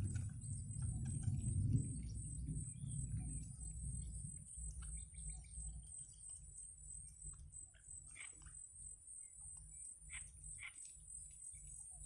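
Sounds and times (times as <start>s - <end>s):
low rumble: 0.0s - 6.2s.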